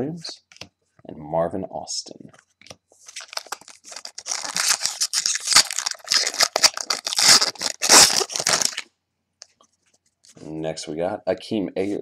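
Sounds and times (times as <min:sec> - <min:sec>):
wrapper tearing and crinkling: 0:03.1 - 0:08.9.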